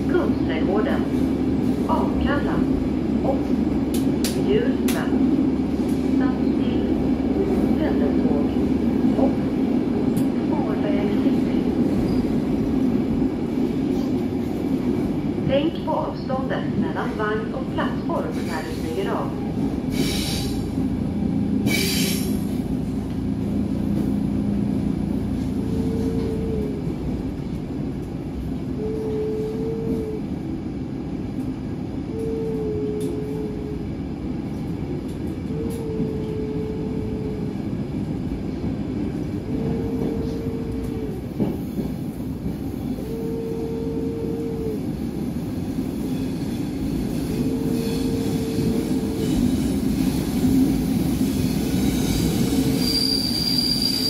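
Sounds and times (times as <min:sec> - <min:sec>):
train wheels rumbling: 0:00.0 - 0:54.0
short train whine: 0:25.4 - 0:26.8, 0:28.8 - 0:30.3, 0:32.1 - 0:33.9, 0:35.5 - 0:37.6, 0:39.5 - 0:41.6, 0:42.8 - 0:44.8, 0:46.1 - 0:54.0.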